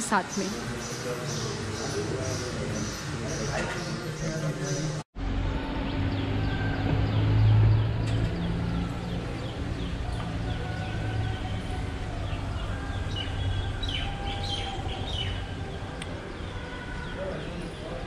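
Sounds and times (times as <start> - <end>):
birds chirping: 0.0 - 5.0, 5.9 - 18.0.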